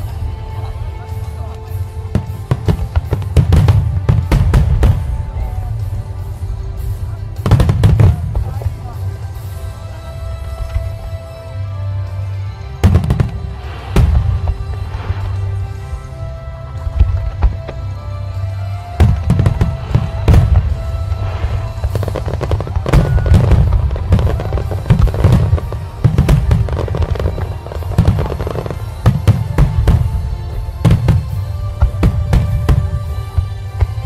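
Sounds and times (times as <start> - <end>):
fireworks bursting: 1.8 - 9.6, 12.8 - 16.1, 18.9 - 34.0.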